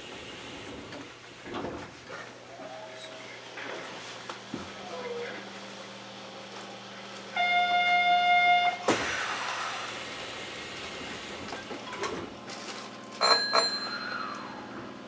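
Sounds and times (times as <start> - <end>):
low train hum: 2.0 - 15.0
train door buzzer: 7.3 - 9.2
hiss of air: 8.9 - 11.5.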